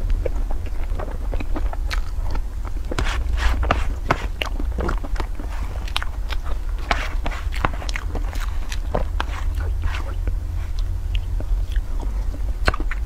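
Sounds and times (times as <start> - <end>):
mouth smacks and chewing: 0.0 - 13.0
steady low hum: 0.0 - 13.0.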